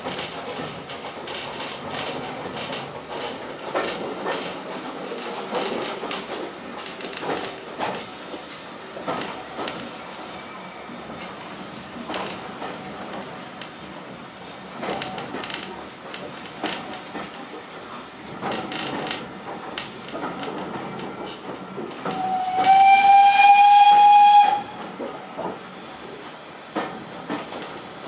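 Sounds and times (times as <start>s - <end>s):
railway carriage rumbling and clattering: 0.0s - 28.0s
steam whistle long blast: 22.1s - 24.8s.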